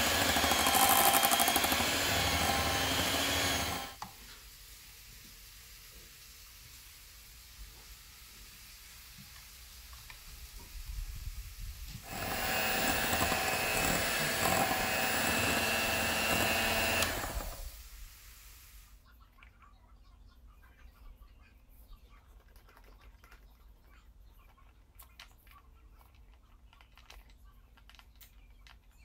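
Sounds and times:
electric hand mixer whine: 0.0s - 4.0s, 12.0s - 17.8s.

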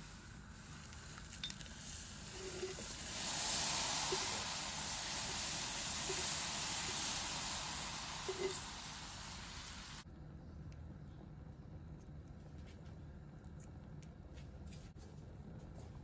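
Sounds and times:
hot milk sizzling and bubbling: 0.0s - 10.1s.

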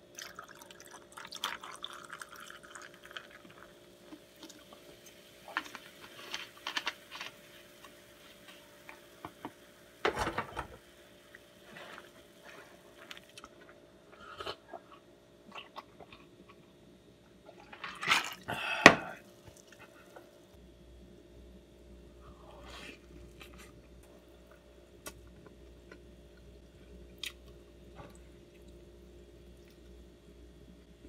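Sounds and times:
faint steady hum: 0.0s - 31.0s
cola fizzing over ice: 0.1s - 7.0s.

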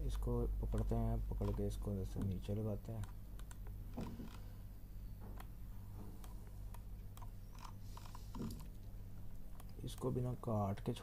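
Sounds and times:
low electrical hum: 0.0s - 11.0s
computer mouse clicks: 0.2s - 3.8s, 6.2s - 8.9s.

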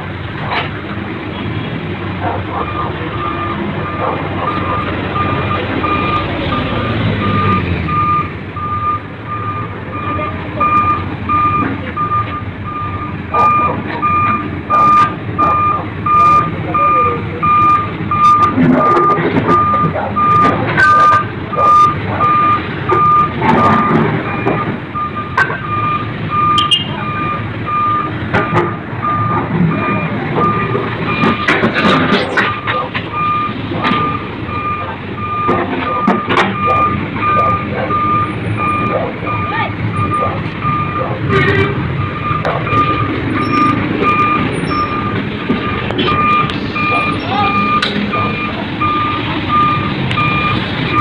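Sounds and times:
engine noise: 0.0s - 51.0s
street traffic: 0.0s - 51.0s
reversing alarm beeping: 2.5s - 51.0s.

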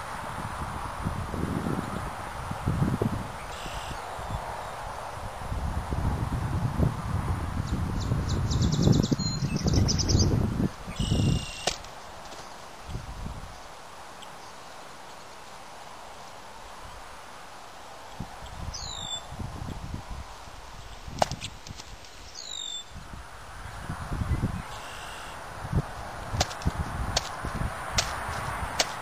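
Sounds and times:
birds chirping trills: 3.3s - 5.2s, 7.6s - 17.1s, 18.0s - 19.8s, 20.7s - 23.0s, 24.2s - 25.4s
bird sweeping calls: 3.4s - 4.8s, 8.0s - 12.6s, 18.4s - 19.3s, 22.1s - 23.0s, 24.6s - 25.4s.

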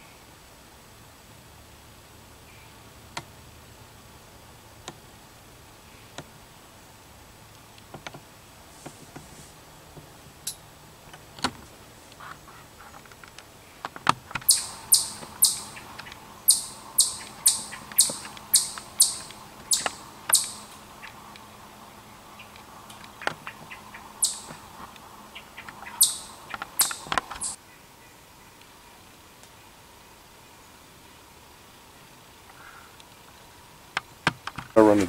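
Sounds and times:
chipmunk chipping: 14.2s - 27.6s.

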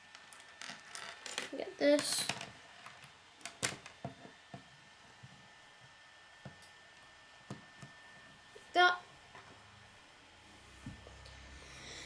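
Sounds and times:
plastic pieces clicking on wooden table: 0.2s - 4.0s.

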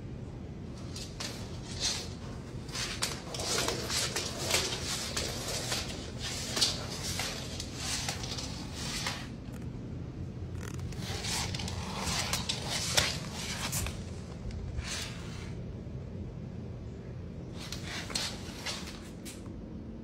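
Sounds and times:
claws scratching on hard floor: 0.8s - 9.6s, 10.6s - 15.6s, 17.6s - 19.4s.

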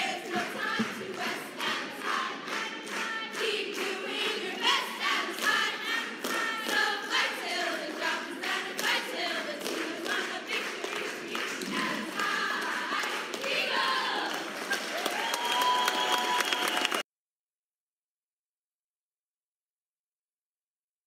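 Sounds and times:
group singing: 0.0s - 14.7s
rhythmic hand claps: 0.0s - 17.0s.

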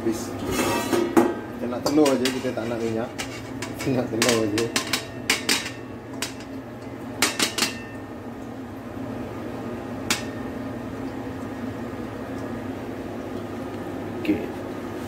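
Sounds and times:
steady low hum: 0.0s - 15.0s
wok and colander clinking: 0.4s - 6.6s, 7.2s - 8.1s.

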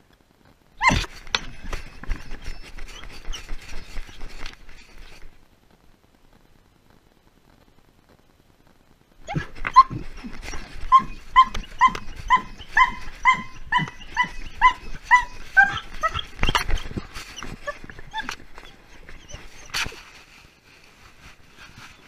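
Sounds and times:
rustling: 0.0s - 22.0s
dog yipping: 0.8s - 4.4s, 9.2s - 20.0s.

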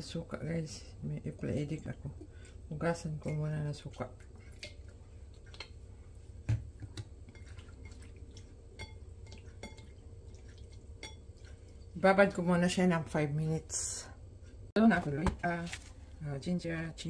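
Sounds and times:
faint wet drips: 1.7s - 12.0s.

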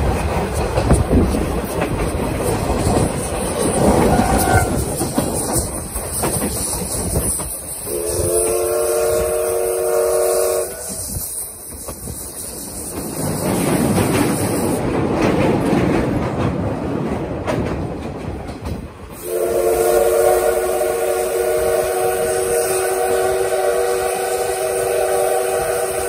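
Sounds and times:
train rattling: 0.0s - 26.0s
steam locomotive whistle: 4.0s - 5.7s, 6.6s - 13.4s, 19.2s - 26.0s.

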